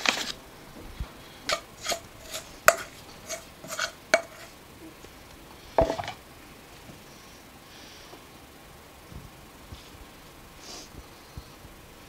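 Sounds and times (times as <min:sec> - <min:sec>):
metal spoon clinking on bowl: 0:01.5 - 0:04.5
bowl knocking: 0:05.8 - 0:06.2.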